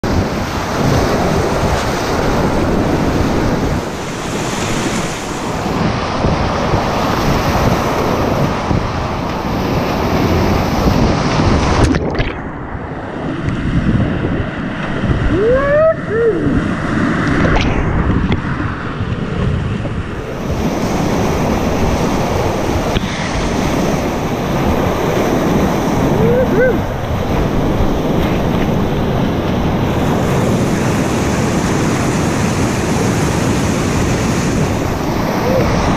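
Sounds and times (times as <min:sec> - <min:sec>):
wind buffeting microphone: 0:00.0 - 0:35.9
whitewater rapids rushing: 0:15.2 - 0:17.6, 0:20.2 - 0:35.9.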